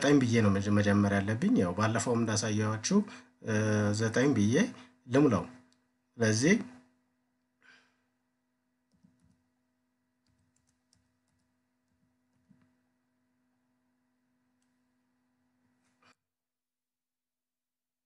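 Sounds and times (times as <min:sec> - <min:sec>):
computer keyboard clicks: 0:08.9 - 0:09.4, 0:10.2 - 0:12.7.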